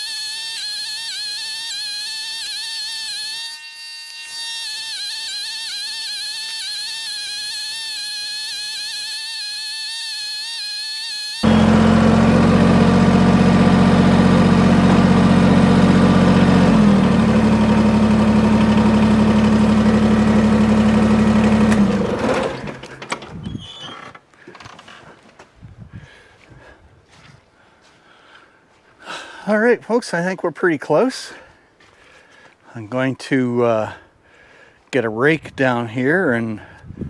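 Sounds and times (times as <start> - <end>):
high wavering whine: 10.2 - 21.8
tractor engine running: 11.4 - 23.7.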